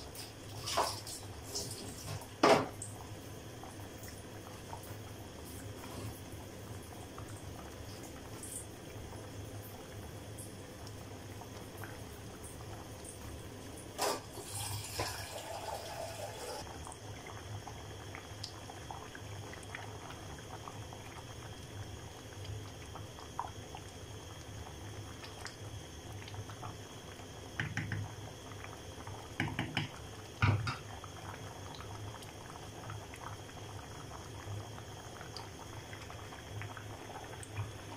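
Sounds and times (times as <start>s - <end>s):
pot simmering and bubbling: 0.0s - 37.9s
wooden spatula knocking pot: 29.4s - 30.8s.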